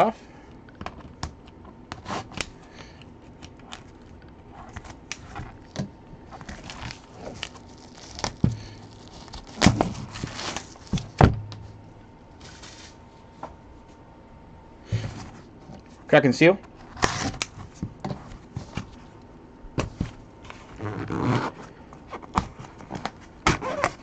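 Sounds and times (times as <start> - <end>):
cellophane crinkling: 3.6 - 11.2.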